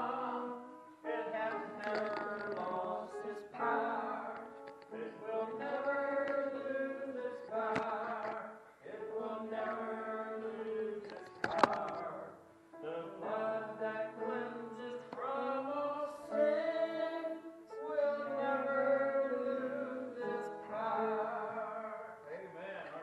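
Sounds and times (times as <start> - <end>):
voices singing a hymn: 0.0 - 23.0.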